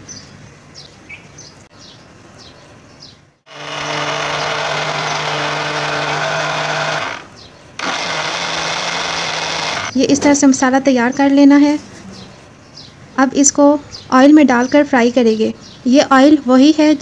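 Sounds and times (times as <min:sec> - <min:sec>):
electric blender motor grinding: 0:03.5 - 0:10.0.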